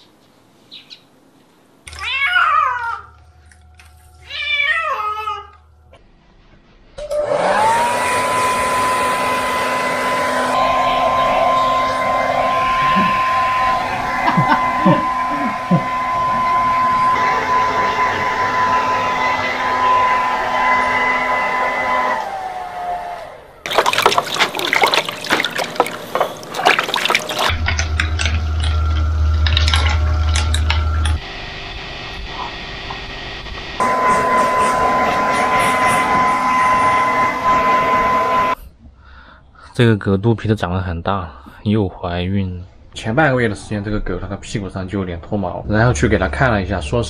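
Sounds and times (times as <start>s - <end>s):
hair dryer motor whine: 7.0s - 38.6s
blowing air rush: 7.3s - 27.6s, 33.8s - 38.6s
shower head spraying water: 7.6s - 22.4s, 23.7s - 31.2s
steady low hum: 9.4s - 38.8s
water splashing in a basin: 23.7s - 31.2s.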